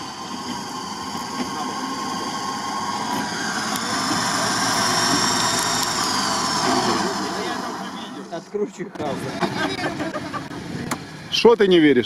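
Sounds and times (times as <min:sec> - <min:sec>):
high drivetrain whine: 0:00.0 - 0:12.0
vehicle engine running: 0:00.0 - 0:12.0.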